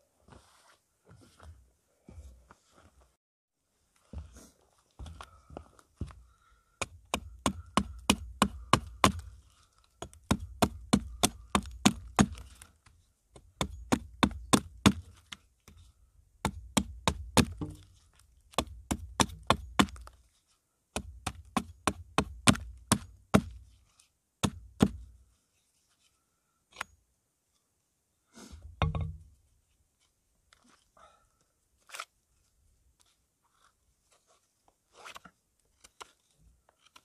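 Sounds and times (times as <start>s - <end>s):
hatchet chopping wood: 6.8s - 9.3s, 10.0s - 12.6s, 13.4s - 15.4s, 16.4s - 17.9s, 18.5s - 20.1s, 20.9s - 23.6s, 24.4s - 25.0s.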